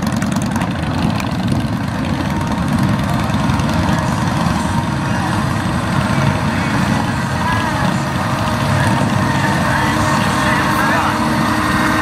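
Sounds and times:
engine-powered cart running: 0:00.0 - 0:12.0
motorcycle pulling away: 0:00.0 - 0:12.0.

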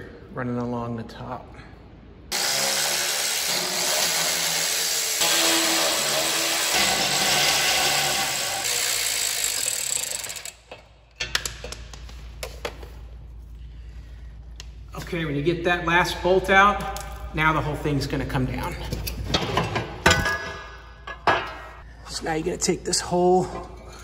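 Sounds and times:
cordless ratchet running: 0:06.3 - 0:10.6.

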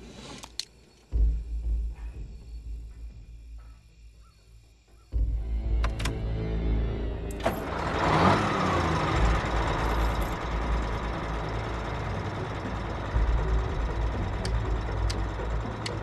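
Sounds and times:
truck diesel engine starting and running: 0:05.3 - 0:16.0
ignition key click: 0:05.8 - 0:06.2.

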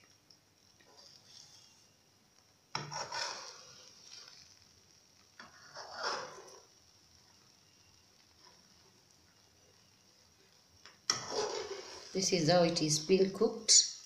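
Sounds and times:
metal spoon scraping frying pan: 0:02.7 - 0:04.4, 0:05.4 - 0:06.6, 0:11.1 - 0:12.3.

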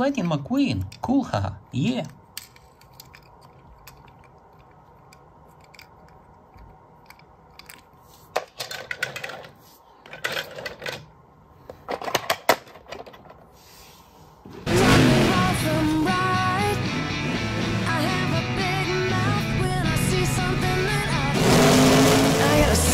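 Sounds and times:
toy car clicking and clattering: 0:02.0 - 0:11.1.

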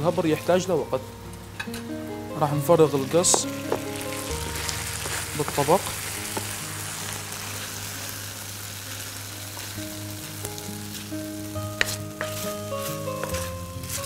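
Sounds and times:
meat sizzling in a frying pan: 0:02.8 - 0:14.0.

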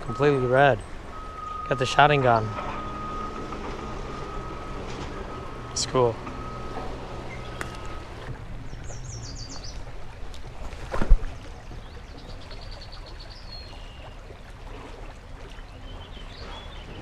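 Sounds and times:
high chirping notes: 0:00.0 - 0:08.2
river water flowing over rocks: 0:00.0 - 0:17.0.

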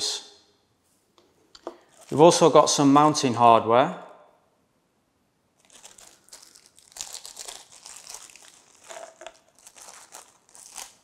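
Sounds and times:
plastic bag crinkling: 0:01.8 - 0:02.4, 0:05.6 - 0:11.0.

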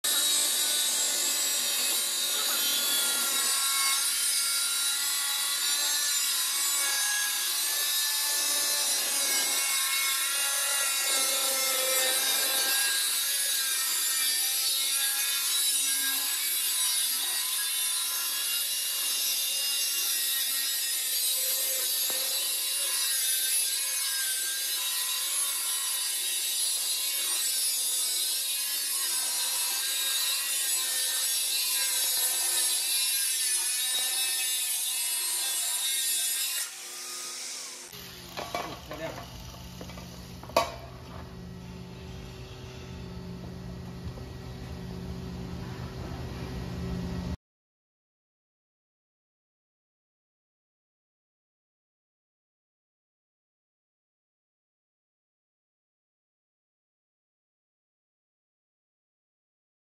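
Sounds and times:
angle grinder cutting metal: 0:00.0 - 0:43.4.

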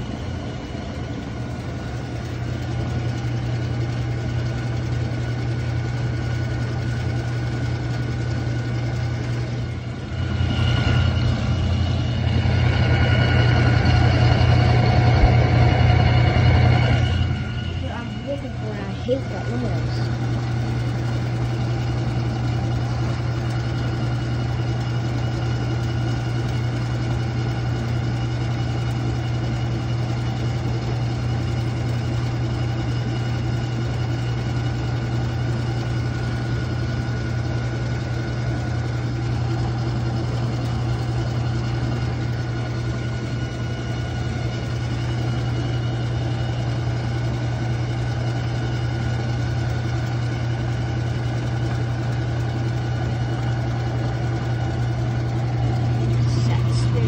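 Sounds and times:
washing machine motor hum: 0:00.0 - 0:57.0
grinding rattling drone: 0:09.1 - 0:21.2, 0:55.4 - 0:57.0.

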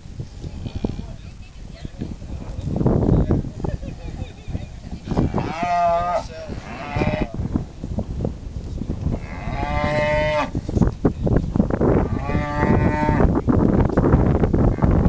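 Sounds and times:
cattle mooing: 0:05.1 - 0:07.3, 0:09.2 - 0:10.5, 0:12.0 - 0:13.3.

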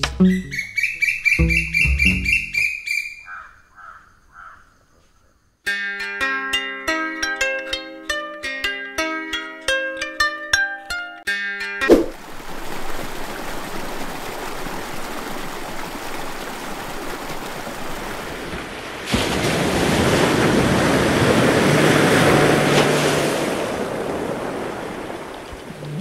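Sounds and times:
ocean surf washing: 0:11.9 - 0:26.0
wave crashing: 0:11.9 - 0:26.0.

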